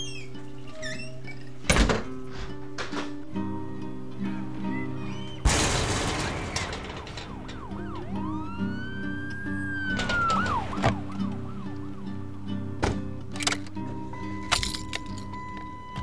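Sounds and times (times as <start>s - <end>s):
pulsing music score: 3.4s - 14.4s
siren wailing and yelping: 4.5s - 5.5s, 6.6s - 12.7s
loud crash-like hit: 5.5s - 7.7s.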